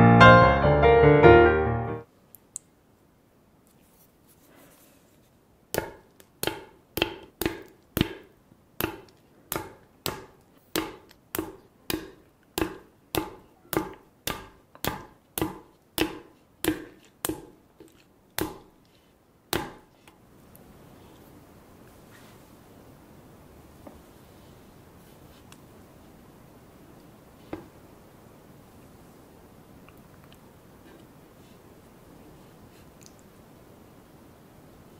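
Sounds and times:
jelly ball skins popping: 5.7 - 18.9.

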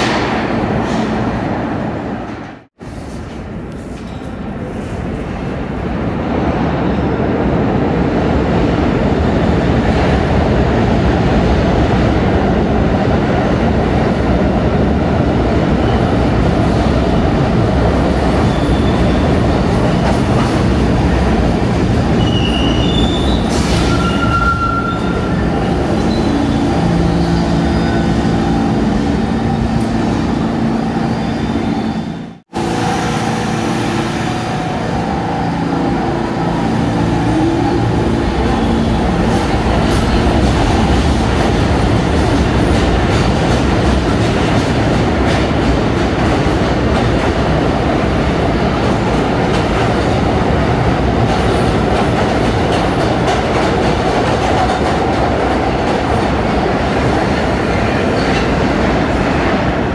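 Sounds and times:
train wheels rumbling on rail: 0.0 - 59.9
high-pitched wheel squeals: 22.2 - 28.5.

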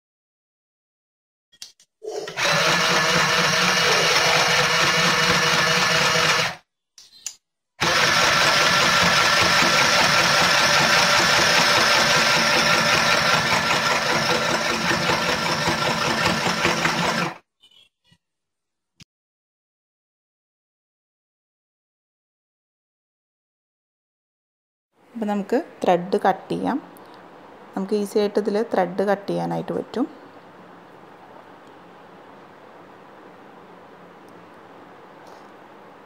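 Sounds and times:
sewing machine running: 2.3 - 6.6, 7.8 - 17.4.

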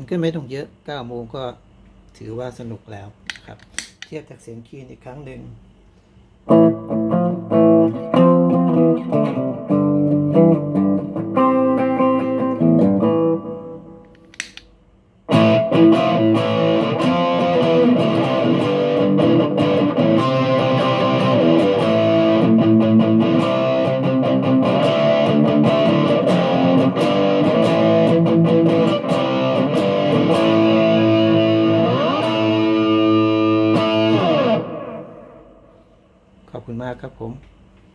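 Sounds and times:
clean electric guitar: 6.4 - 14.6, 15.3 - 36.0
overdriven electric guitar crunch: 6.4 - 14.6, 15.3 - 35.9.

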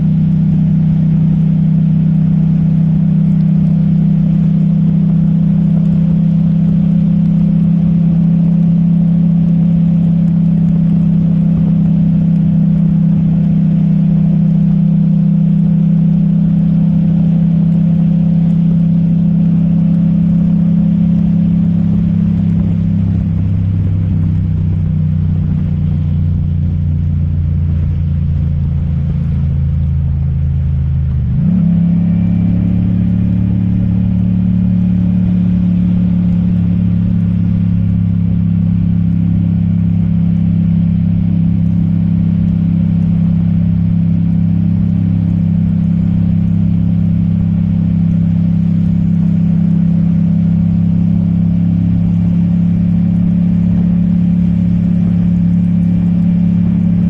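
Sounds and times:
motorcycle engine cruising: 0.0 - 57.0
wind and wet road hiss: 2.2 - 31.2.

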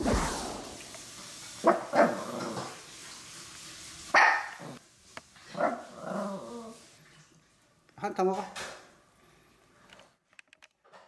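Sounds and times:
dogs barking: 1.6 - 2.3, 4.1 - 4.8.

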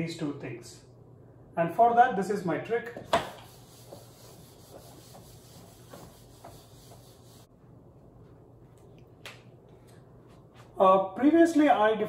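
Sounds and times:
low room hiss: 0.0 - 12.0
eraser rubbing on whiteboard: 3.0 - 7.5.

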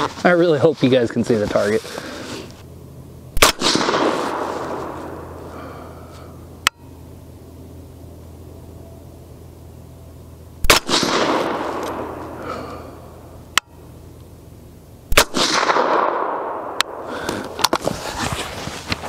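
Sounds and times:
suppressed rifle shots: 3.4 - 5.3, 10.6 - 12.4, 15.1 - 17.0.

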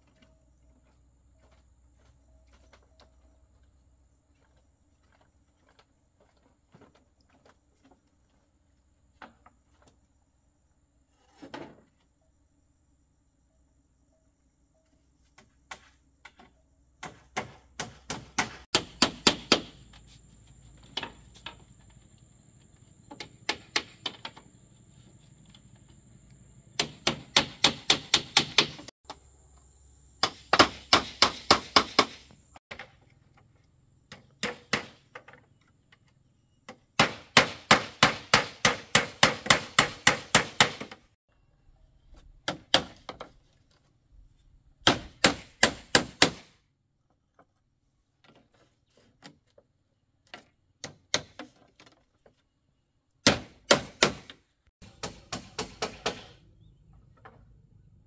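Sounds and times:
hammer striking nails into bamboo: 17.0 - 19.8, 23.2 - 24.3, 26.8 - 28.9, 30.2 - 32.3, 34.1 - 35.2, 37.0 - 41.0, 44.8 - 46.5, 53.2 - 56.4.

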